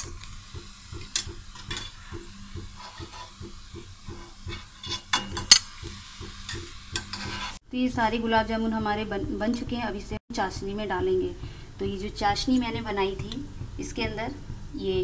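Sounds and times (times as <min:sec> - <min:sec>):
soft knocks in pan: 0:00.0 - 0:07.6
oil sizzling: 0:00.0 - 0:15.0
metal spoon clinking on pan: 0:01.1 - 0:02.2, 0:04.2 - 0:05.8.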